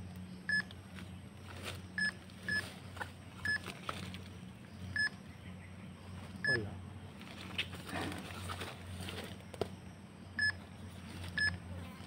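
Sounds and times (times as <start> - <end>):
metal detector beeps: 0.5 - 0.7, 2.0 - 2.7, 3.4 - 3.6, 4.9 - 5.1, 10.4 - 10.6, 11.4 - 11.6.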